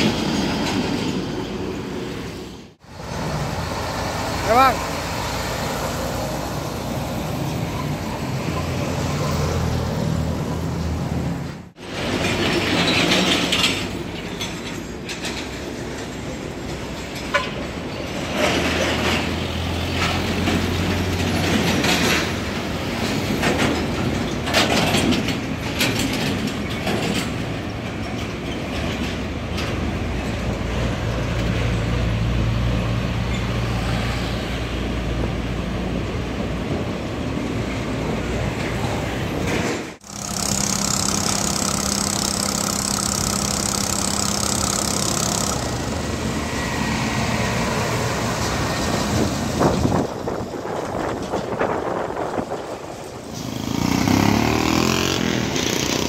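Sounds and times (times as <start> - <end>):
trailers rattling: 0.0 - 34.2, 35.1 - 56.0
diesel trucks passing: 0.0 - 56.0
tyres on the road: 0.0 - 56.0
sharp clicks and knocks: 39.5 - 46.2.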